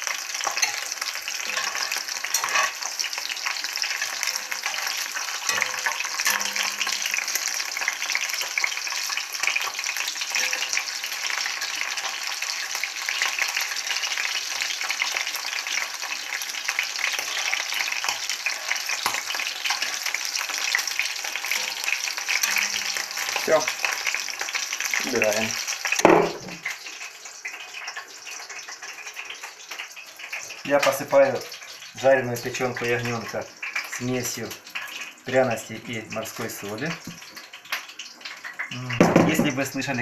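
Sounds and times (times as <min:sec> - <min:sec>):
liver sizzling in hot oil: 0:00.0 - 0:40.0
metal spatula scraping and tapping: 0:00.4 - 0:07.4, 0:10.3 - 0:10.8, 0:19.0 - 0:20.1, 0:21.4 - 0:23.5.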